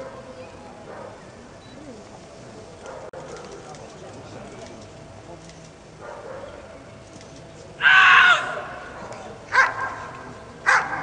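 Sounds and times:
dog barking: 6.0 - 6.6, 8.9 - 11.0.

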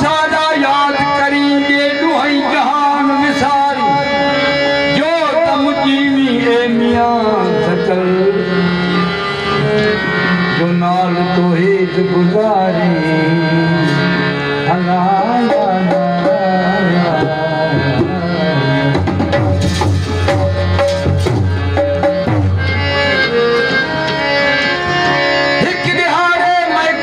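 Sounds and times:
harmonium melody: 0.0 - 27.0
deep heavy drum pattern: 15.0 - 23.2
hand drum beats: 18.9 - 22.8.

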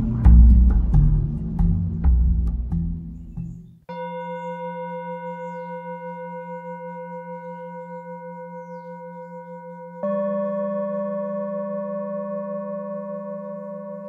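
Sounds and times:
background music: 0.0 - 3.8
steady ringing tone: 3.9 - 14.0.

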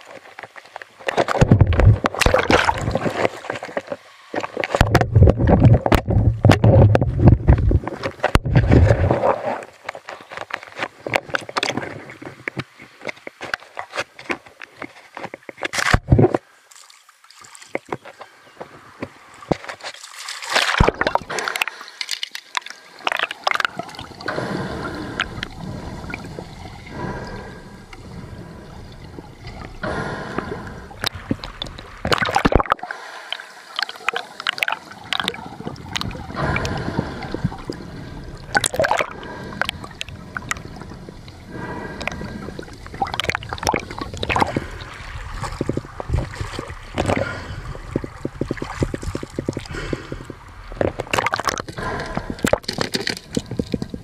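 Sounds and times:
splashes and knocks: 0.0 - 24.5, 29.2 - 32.9, 33.8 - 37.8, 38.4 - 40.8, 41.9 - 54.0
seawater sloshing: 18.9 - 54.0.

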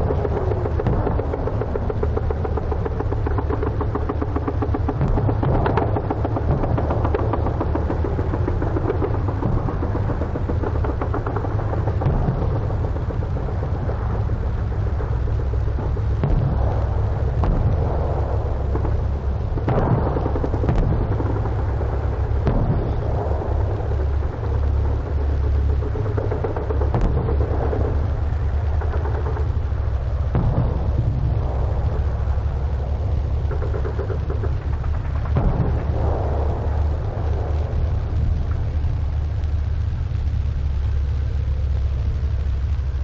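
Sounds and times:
steady low rumble: 0.0 - 43.0.

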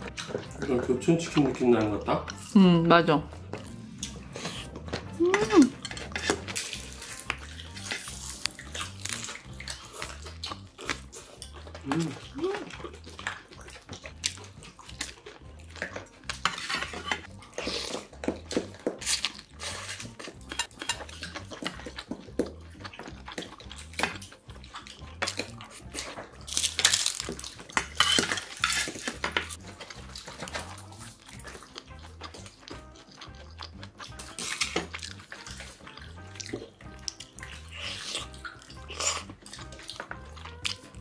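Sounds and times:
chewing: 0.0 - 2.6, 3.2 - 41.0
metal utensils clinking on bowls: 5.3 - 8.5, 10.9 - 12.3, 15.8 - 17.3, 20.3 - 22.0, 25.1 - 30.7.

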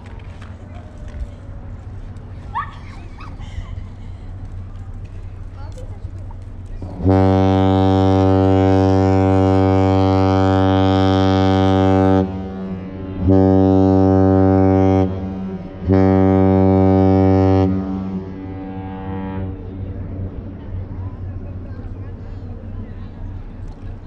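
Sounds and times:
deep ship's horn blasts: 6.8 - 23.6.

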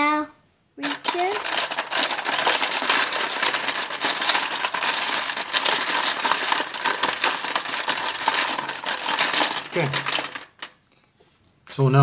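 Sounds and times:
plastic markers clattering: 0.8 - 10.8.

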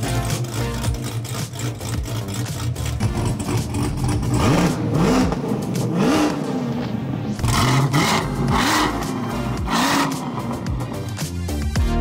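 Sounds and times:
car engine revving: 0.0 - 11.6.

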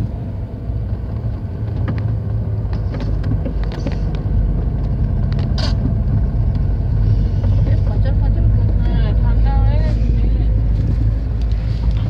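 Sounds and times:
vehicle engine and road drone: 0.0 - 12.0
rattles and clicks: 1.0 - 7.8.

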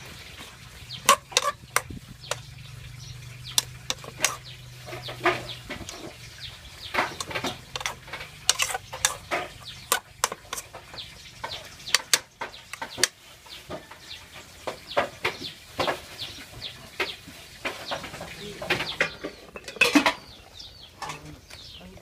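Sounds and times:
metal ladle scraping cooking pot: 0.0 - 13.7, 18.7 - 21.2
high bird chirps: 0.0 - 17.2.

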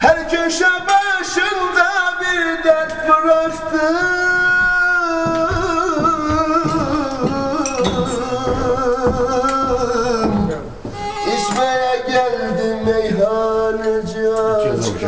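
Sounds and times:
low knocks: 4.1 - 13.3.

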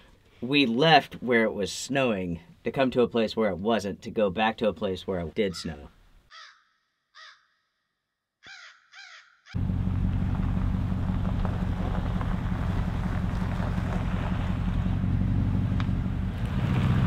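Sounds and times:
crow cawing: 5.5 - 7.7, 8.4 - 9.6
truck driving rumble: 9.6 - 17.0.

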